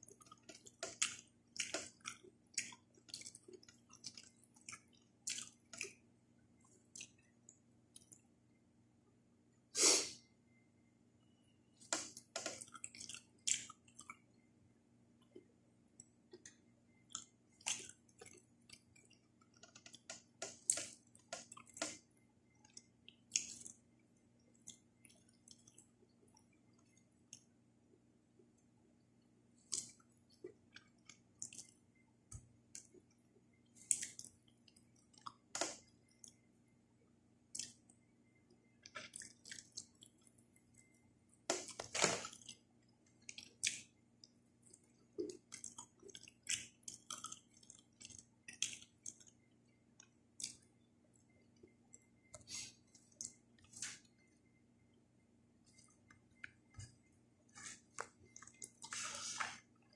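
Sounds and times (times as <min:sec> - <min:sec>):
wet chewing: 0:00.0 - 0:06.0, 0:11.9 - 0:14.2, 0:16.3 - 0:23.8, 0:29.6 - 0:36.5, 0:38.8 - 0:54.3, 0:55.7 - 0:59.9.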